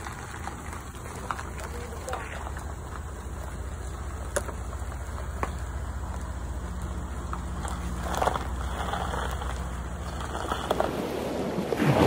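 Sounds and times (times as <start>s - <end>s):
truck engine rumbling: 0.0s - 12.0s.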